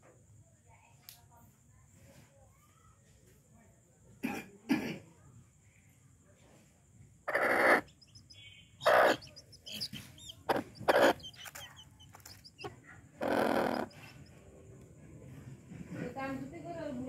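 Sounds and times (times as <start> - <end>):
hens squawking: 7.3 - 14.2
hens clucking and chirping: 7.3 - 14.7.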